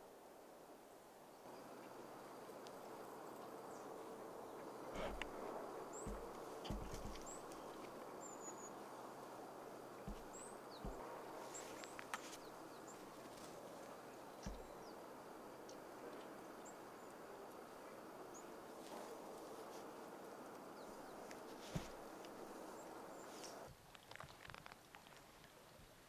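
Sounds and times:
low background hiss: 0.0s - 23.9s
dull low bumps: 5.0s - 7.9s, 9.9s - 13.2s, 14.4s - 14.8s.

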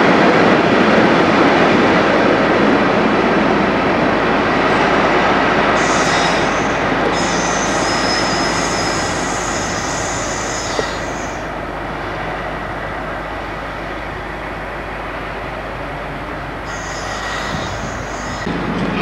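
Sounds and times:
diesel locomotive engine: 0.0s - 19.0s
high-pitched wheel squeal: 5.8s - 11.5s, 16.7s - 18.5s.

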